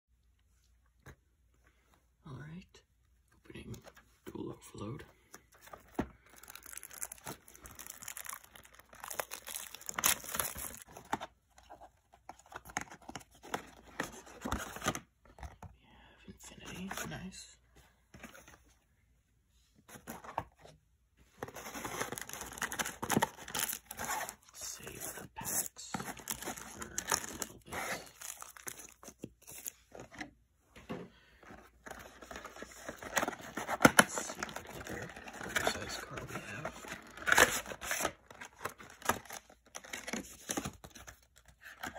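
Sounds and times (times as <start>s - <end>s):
plastic and cardboard packaging crinkling: 5.3s - 15.6s, 21.4s - 30.3s, 31.4s - 41.9s
foil wrappers crinkling: 6.2s - 10.9s.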